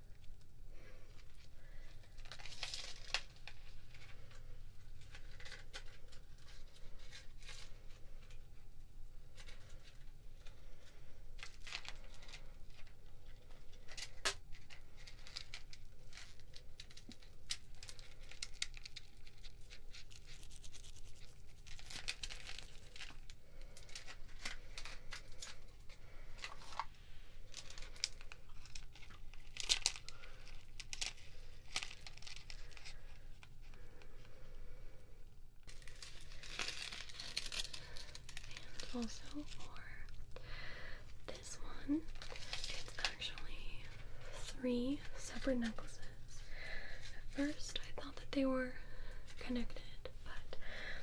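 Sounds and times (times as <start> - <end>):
packaging crinkling and tearing: 1.1 - 8.6, 9.2 - 34.2, 35.6 - 48.2.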